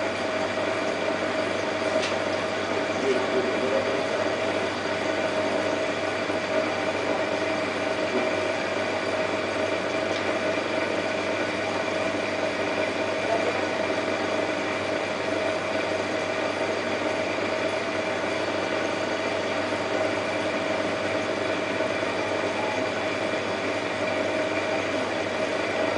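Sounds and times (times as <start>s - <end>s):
pump hum: 0.0s - 25.9s.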